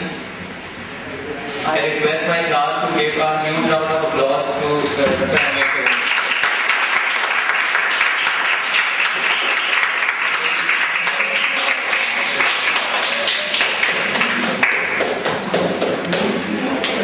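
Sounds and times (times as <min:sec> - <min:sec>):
audience applauding: 0:05.3 - 0:17.0.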